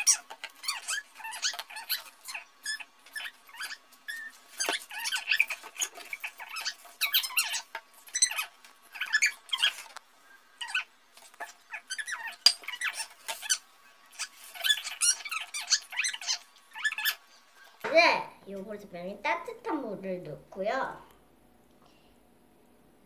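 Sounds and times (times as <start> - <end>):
fast-forwarded squeaky voice gabble: 0.0 - 9.9, 10.6 - 17.8.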